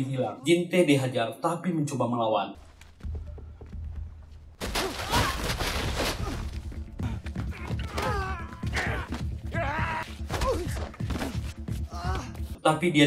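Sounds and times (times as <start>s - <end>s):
background music: 0.0s - 13.0s
men grunting and crying out: 4.7s - 12.5s.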